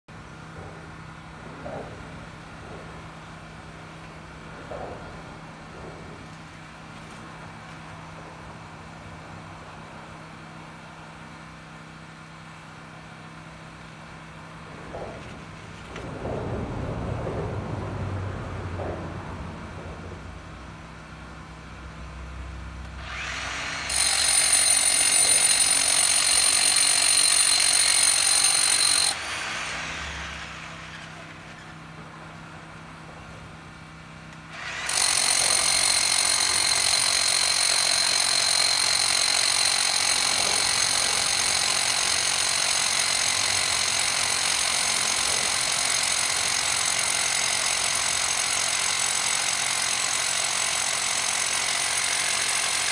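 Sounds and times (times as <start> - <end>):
power drill boring into concrete: 23.0 - 31.8, 34.5 - 52.9.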